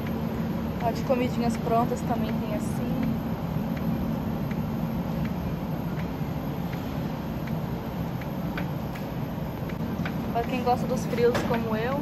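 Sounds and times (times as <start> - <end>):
refrigerator hum and hiss: 0.0 - 12.0
faint regular clicks: 3.0 - 10.6.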